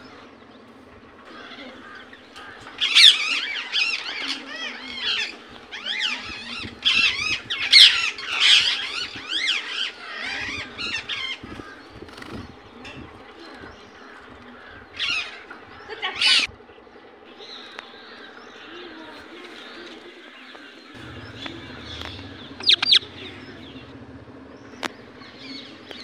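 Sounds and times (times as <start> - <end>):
parakeet chirps and squawks: 2.8 - 11.5, 16.1 - 16.5, 21.2 - 23.8
parakeet soft warbling: 21.8 - 23.4.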